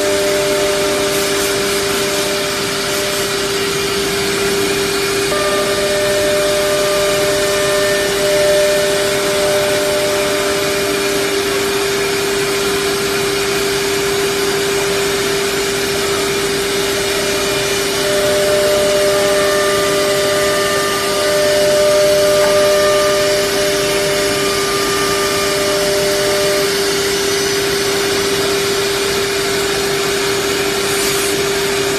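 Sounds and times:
higher machine tone: 0.0s - 12.7s, 16.2s - 27.1s
router spindle whine: 0.0s - 31.9s.

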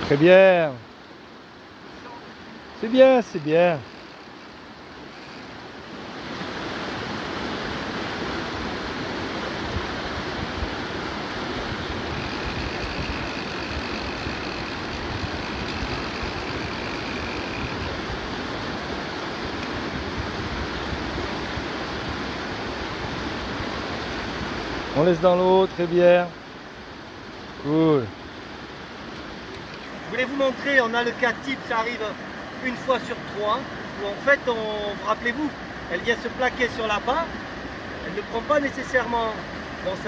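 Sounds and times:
river rapids rushing over rocks: 0.0s - 40.0s.

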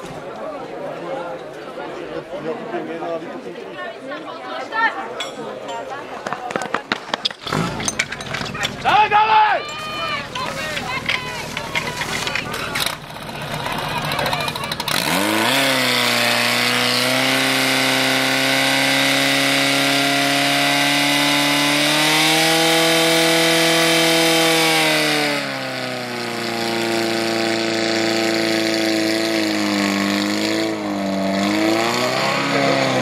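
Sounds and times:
fire pump engine running: 7.5s - 33.0s.

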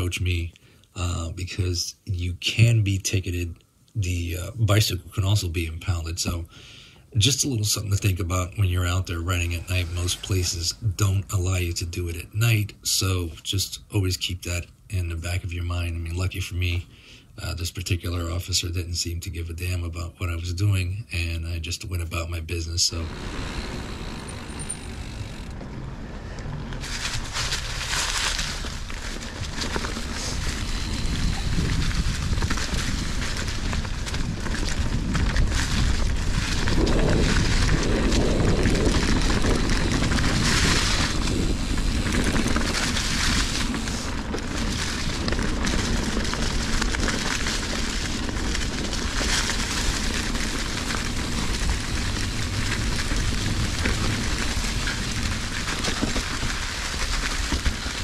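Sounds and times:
bike rattling: 22.9s - 58.0s
tyres crackling over leaves: 22.9s - 58.0s
wind on microphone: 28.6s - 56.6s.

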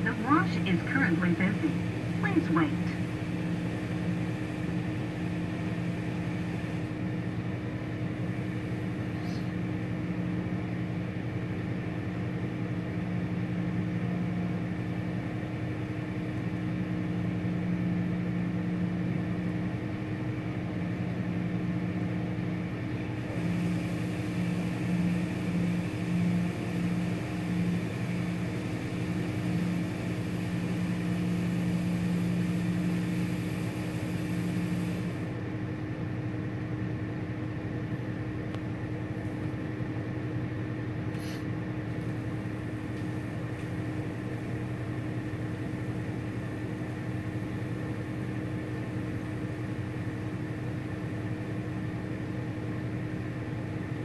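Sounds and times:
car wash pumps humming: 0.0s - 12.4s, 22.6s - 35.6s, 40.6s - 54.0s.

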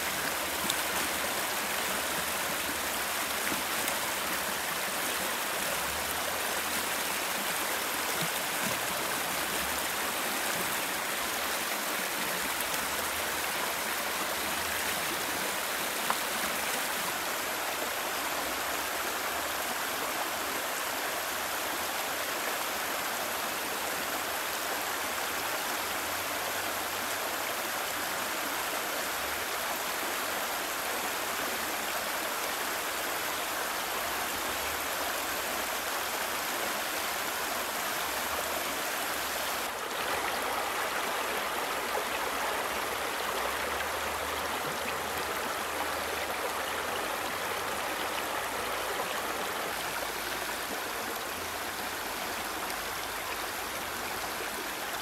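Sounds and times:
water rushing over rocks: 36.8s - 52.0s.

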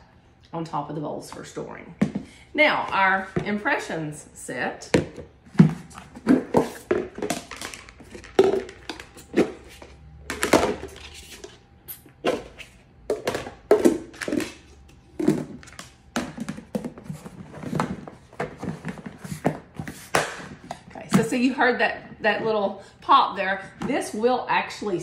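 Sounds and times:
plastic bowls knocking together: 4.8s - 11.0s, 12.3s - 21.4s.

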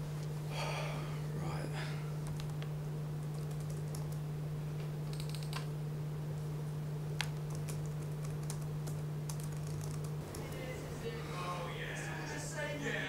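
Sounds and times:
steady low hum: 0.0s - 13.0s
laptop keyboard typing: 2.2s - 4.2s, 5.0s - 5.7s, 7.2s - 10.5s.

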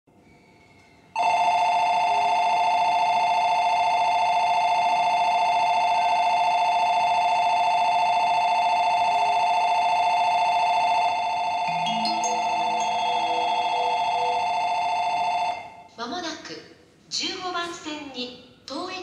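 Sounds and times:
electronic departure bell ringing: 8.6s - 15.9s.

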